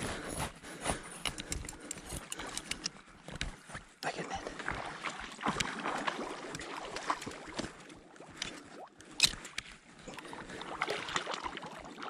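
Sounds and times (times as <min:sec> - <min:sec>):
water sloshing: 0:04.2 - 0:12.0
fish splashing in water: 0:10.2 - 0:12.0.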